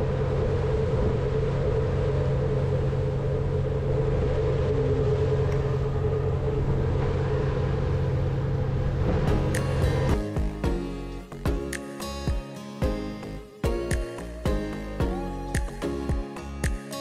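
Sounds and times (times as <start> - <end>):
ship engines droning: 0.0 - 11.2
guitar music: 9.3 - 17.0.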